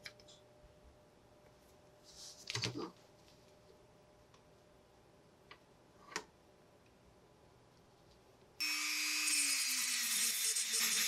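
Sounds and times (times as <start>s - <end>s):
rotary tool sanding metal: 8.6s - 11.0s.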